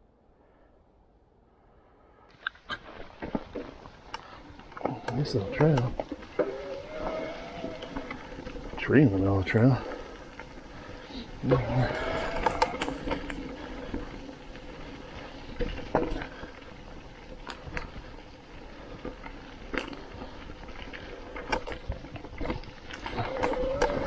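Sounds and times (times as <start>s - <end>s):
bike rattling over bumps: 2.3s - 24.0s
tyres rustling through dry leaves: 2.7s - 24.0s
short wavering whine: 4.9s - 8.9s.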